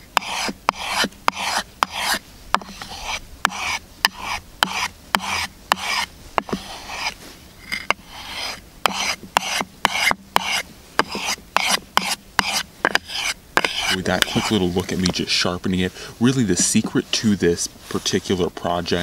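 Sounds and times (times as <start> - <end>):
knife blade scraping on sandpaper: 0.2 - 15.1.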